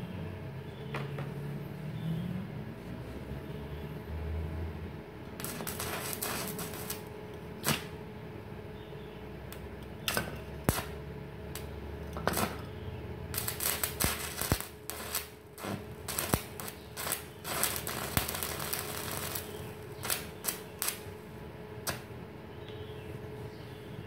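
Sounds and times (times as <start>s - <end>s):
arc welding crackling and spitting: 5.1s - 22.2s.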